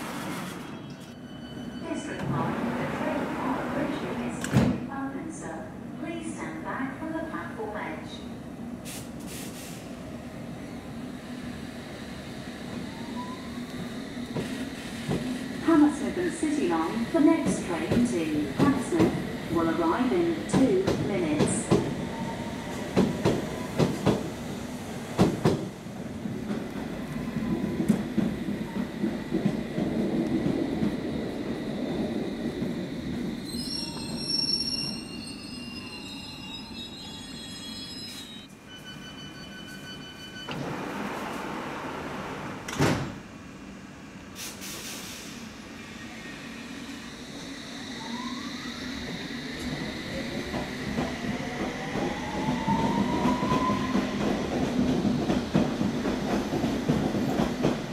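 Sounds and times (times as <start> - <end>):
train rumble: 13.7 - 34.2, 49.0 - 57.9
sliding doors closing thump: 40.5 - 43.2.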